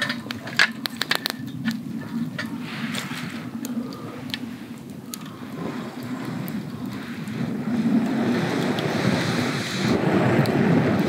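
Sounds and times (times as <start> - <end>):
campfire crackles: 0.0 - 11.0
wind gusting over microphone: 0.0 - 11.0.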